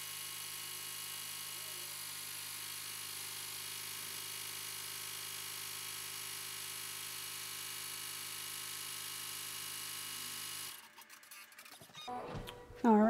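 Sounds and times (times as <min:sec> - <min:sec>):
embroidery machine humming: 0:10.2 - 0:13.0.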